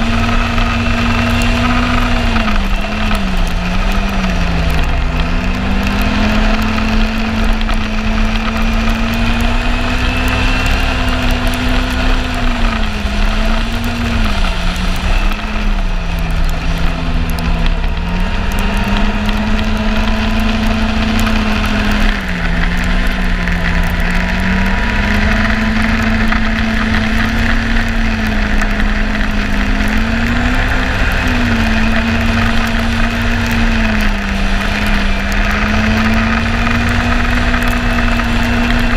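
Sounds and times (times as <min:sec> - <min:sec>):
snowmobile engine running: 0:00.0 - 0:38.9.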